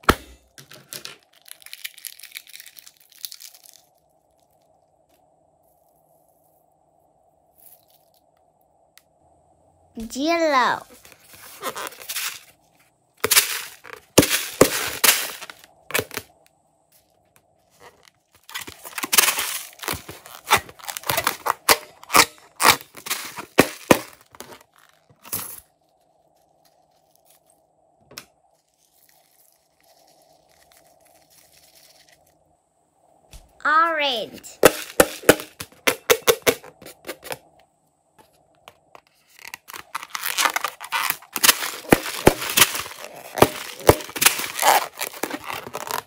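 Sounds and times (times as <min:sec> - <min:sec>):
slime balloon crackling: 0:17.8 - 0:25.1, 0:39.4 - 0:46.0.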